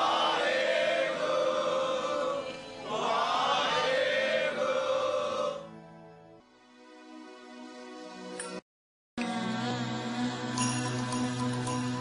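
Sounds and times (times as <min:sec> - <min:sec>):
voices chanting in chorus: 0:00.0 - 0:05.7.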